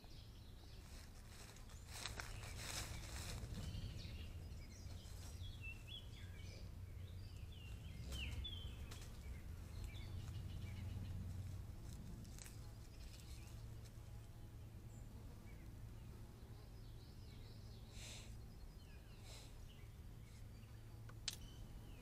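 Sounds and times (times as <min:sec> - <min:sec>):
low steady hum: 0:00.0 - 0:22.0
small songbirds chirping: 0:00.0 - 0:22.0.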